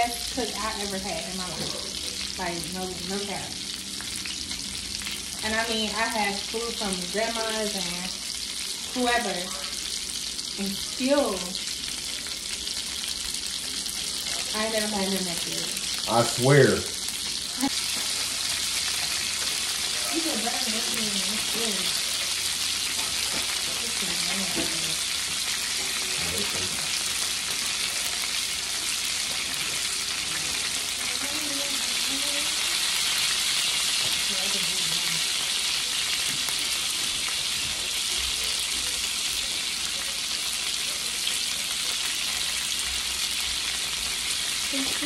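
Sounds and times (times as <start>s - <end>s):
burgers sizzling in a skillet: 0.0s - 45.0s.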